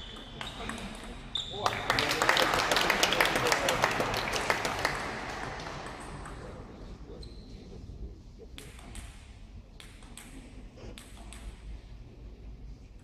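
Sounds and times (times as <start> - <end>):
applause: 1.6 - 6.2
table tennis ball bouncing: 8.6 - 11.6.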